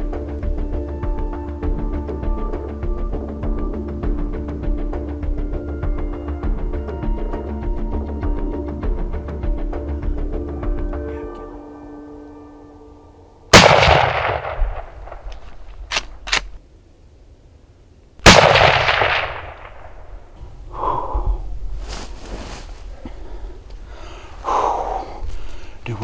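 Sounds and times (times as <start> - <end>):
rifle shots with echo: 13.5 - 15.4, 18.2 - 20.2
rifle lever clicks: 15.2 - 16.6.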